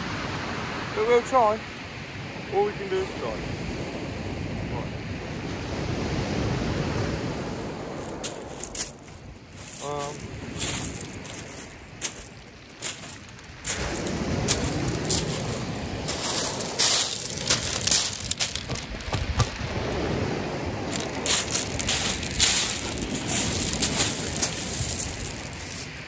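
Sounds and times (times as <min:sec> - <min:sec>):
low wind rumble: 0:00.0 - 0:26.0
crackling microphone handling: 0:08.0 - 0:20.2, 0:20.8 - 0:26.0
footsteps crunching on shingle: 0:08.0 - 0:26.0.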